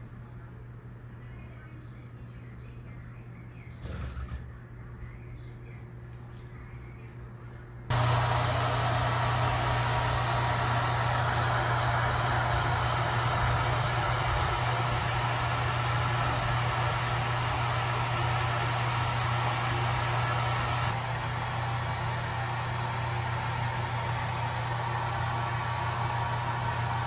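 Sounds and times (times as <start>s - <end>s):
hair dryer blowing air: 7.9s - 27.0s.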